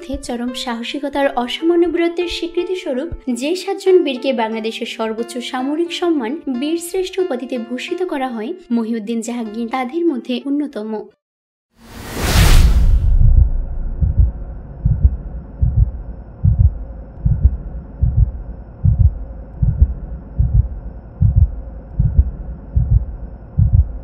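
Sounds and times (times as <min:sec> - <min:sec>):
loud whoosh: 0:11.8 - 0:16.1
heartbeat double thumps: 0:12.9 - 0:24.0
faint steady drone: 0:13.2 - 0:24.0.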